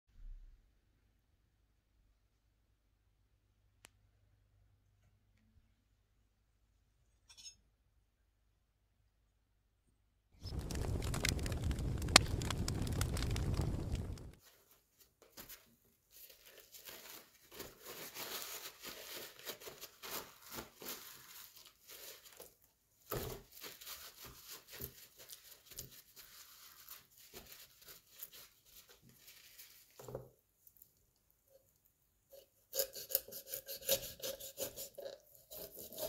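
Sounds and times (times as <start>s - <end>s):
fire crackling: 10.4s - 14.4s
paper towel rustling: 10.4s - 22.5s.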